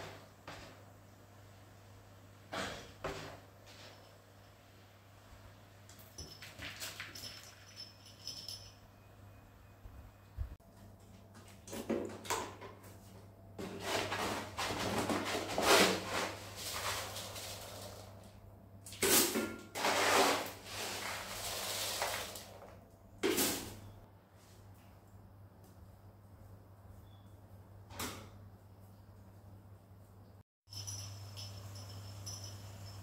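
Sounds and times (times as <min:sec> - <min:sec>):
scooping gritty cat litter: 0:13.6 - 0:23.6.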